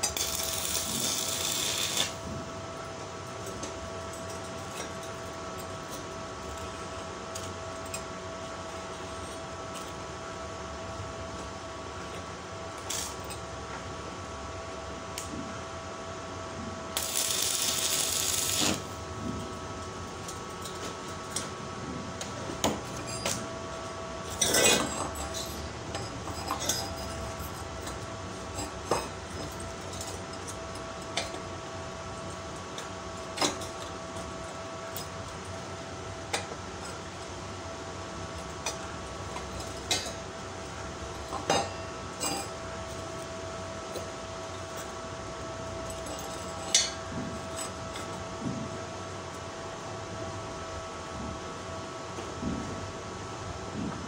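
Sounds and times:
welding hiss: 0:00.0 - 0:02.2, 0:17.0 - 0:19.0
steady whine: 0:00.0 - 0:52.8.

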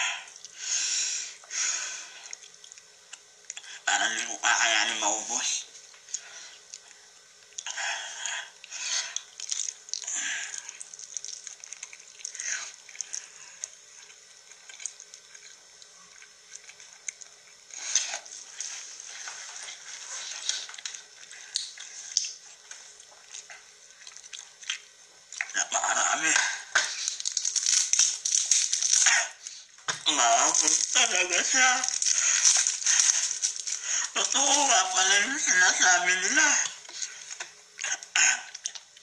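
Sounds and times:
person slurping and chewing noodles: 0:31.8 - 0:34.2.

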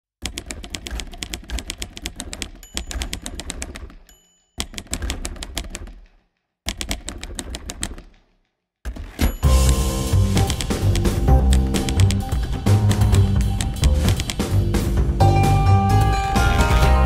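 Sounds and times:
typewriter keys clacking: 0:00.2 - 0:14.6
typewriter bell ding: 0:02.2 - 0:05.0, 0:09.1 - 0:10.9.

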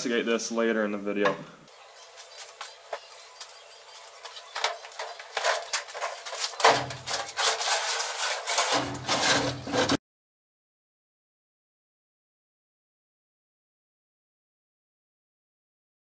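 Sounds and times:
sheet metal cabinet clattering: 0:04.5 - 0:10.0.

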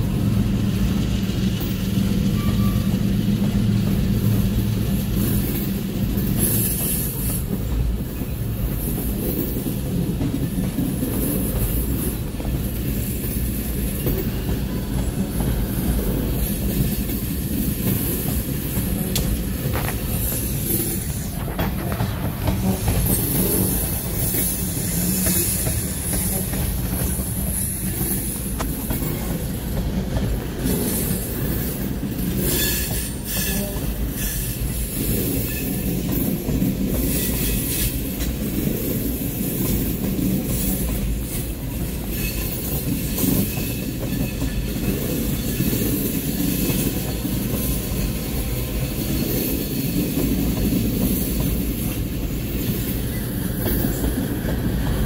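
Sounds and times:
train wheels rumbling on rail: 0:00.0 - 0:55.0
wheels clacking over rail joints: 0:00.9 - 0:55.0
high-pitched wheel squeal: 0:02.3 - 0:03.0.

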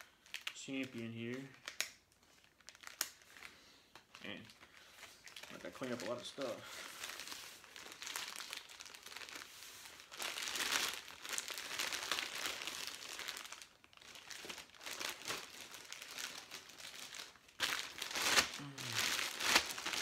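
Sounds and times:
plastic wrapping crinkling: 0:00.0 - 0:20.0.

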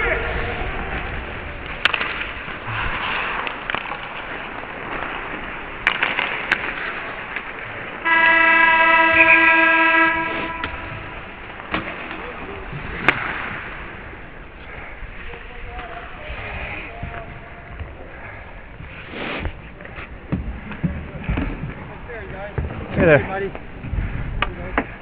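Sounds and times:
sticks and puck knocking on ice: 0:05.8 - 0:07.5
arena horn blast: 0:08.0 - 0:11.4.

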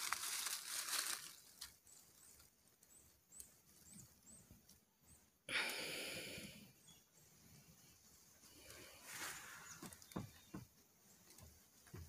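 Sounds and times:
handling rustle: 0:00.0 - 0:02.4.

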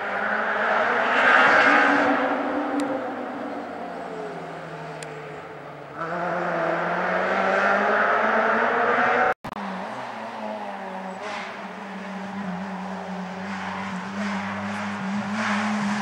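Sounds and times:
rally car engines passing: 0:00.0 - 0:16.0.

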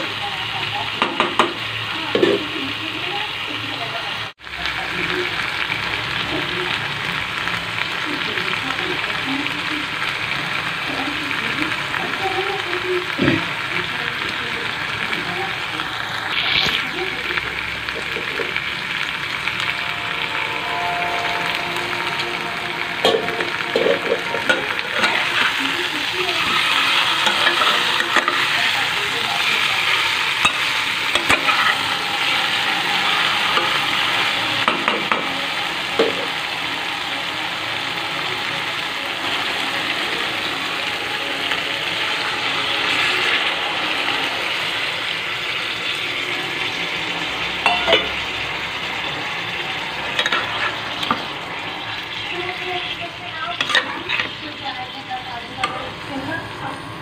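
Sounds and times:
food sizzling in a pot: 0:00.0 - 0:57.0
spatula scraping a pot: 0:53.5 - 0:54.4.

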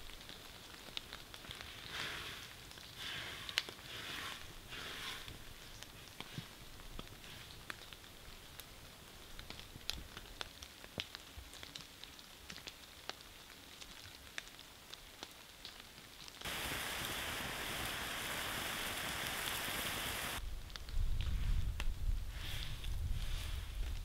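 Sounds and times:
faint rain hiss: 0:00.0 - 0:24.0
raindrops ticking on a tarp: 0:00.0 - 0:24.0
loud steady hiss: 0:16.4 - 0:20.4.

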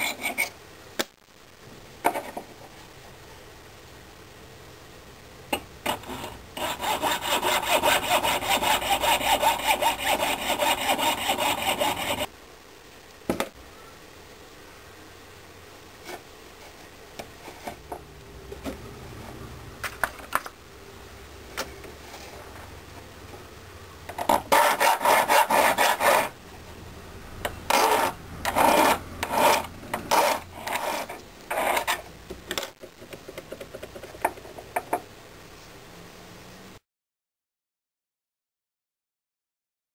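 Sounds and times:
saw rasping through metal: 0:06.0 - 0:12.3, 0:24.5 - 0:26.4, 0:27.7 - 0:32.0.

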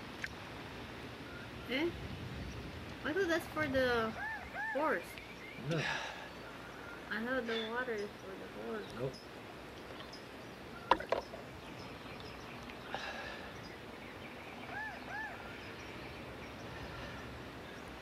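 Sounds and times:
faint outdoor ambience: 0:00.0 - 0:18.0
bird chirps: 0:04.0 - 0:18.0.

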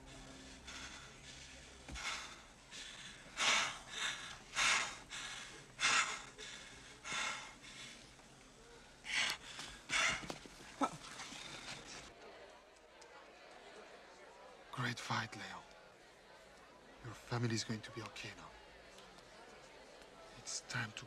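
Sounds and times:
man breathing hard: 0:00.0 - 0:10.6.

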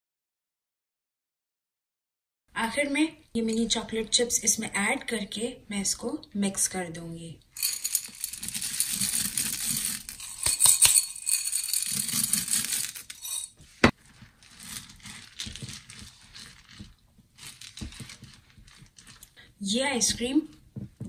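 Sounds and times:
chocolate chips pattering into glass dish: 0:07.6 - 0:13.5, 0:14.2 - 0:19.4
spatula scraping ice cream: 0:11.2 - 0:19.5.

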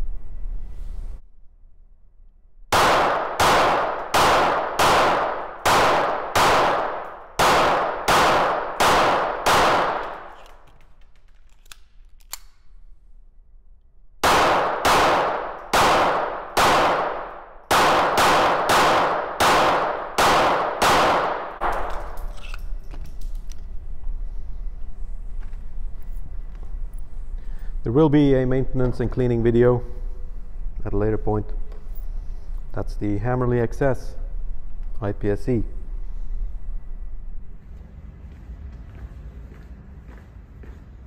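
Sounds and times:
pistol shots in indoor range: 0:01.3 - 0:24.4.

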